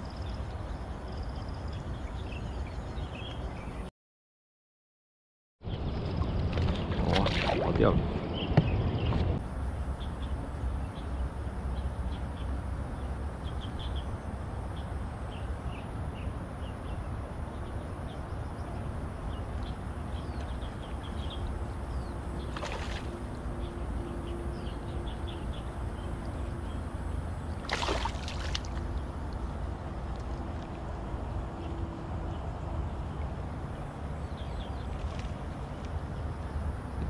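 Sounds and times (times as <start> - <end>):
steady low rumble: 5.6 - 37.0
fish splashing at water surface: 22.5 - 23.1, 27.6 - 28.9.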